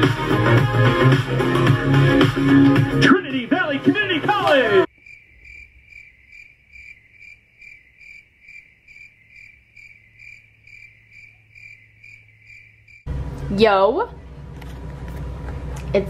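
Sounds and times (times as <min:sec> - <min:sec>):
cricket chirping: 0:04.9 - 0:13.1.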